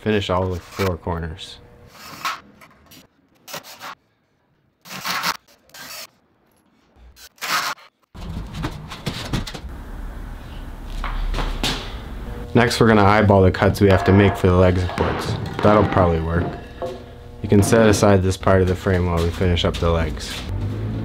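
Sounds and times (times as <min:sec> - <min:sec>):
wooden boards scraping: 0:13.6 - 0:18.2.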